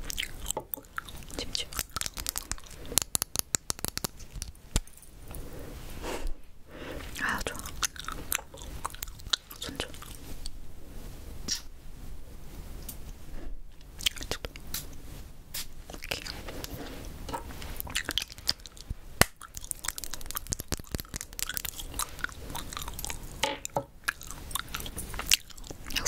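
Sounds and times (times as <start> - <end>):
gum chewing wet smacks: 0.0 - 4.6, 7.3 - 10.6, 13.9 - 14.8, 15.6 - 26.0
mouth clicks: 0.0 - 4.8, 7.2 - 10.6, 11.5 - 11.7, 13.9 - 14.8, 17.7 - 26.0.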